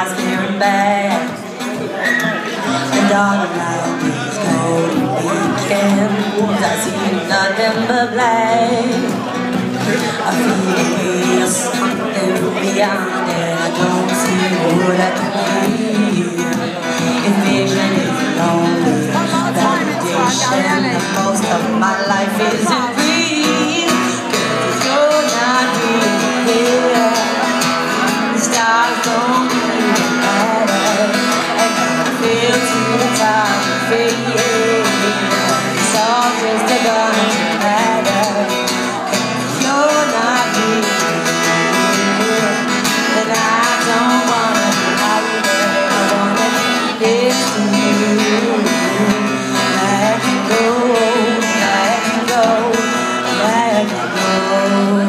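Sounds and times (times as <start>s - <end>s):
acoustic guitar strumming: 0.0s - 55.0s
woman singing into microphone: 0.0s - 55.0s.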